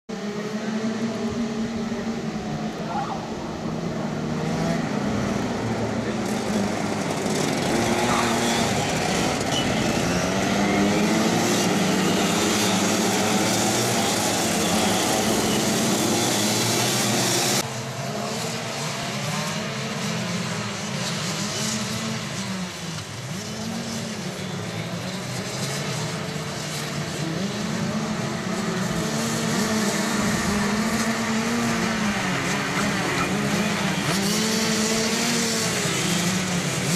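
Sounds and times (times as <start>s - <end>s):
kart engines revving: 0.1s - 36.9s.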